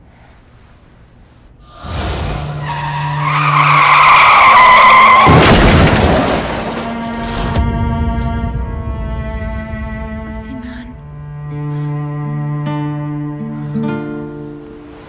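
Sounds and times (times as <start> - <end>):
car tyres screeching: 0.0 - 7.3
heavy crash impact: 3.9 - 10.4.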